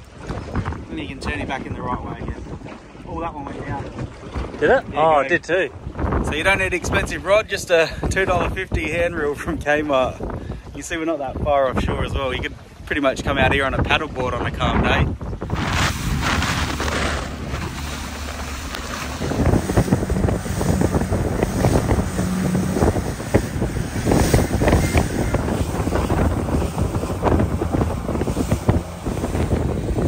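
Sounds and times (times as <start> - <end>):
choppy sea: 0.0 - 30.0
wind buffeting microphone: 0.0 - 30.0
motorboat wash rushing: 14.4 - 30.0.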